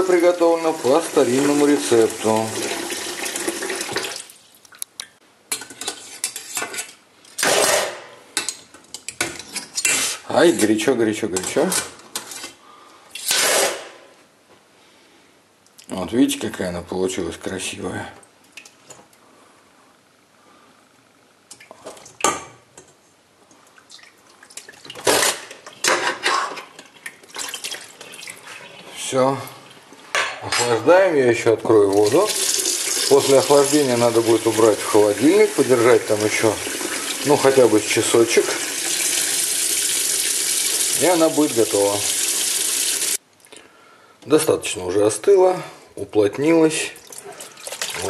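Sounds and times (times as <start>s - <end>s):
running water: 0.0s - 4.6s, 31.8s - 43.2s, 46.9s - 48.0s.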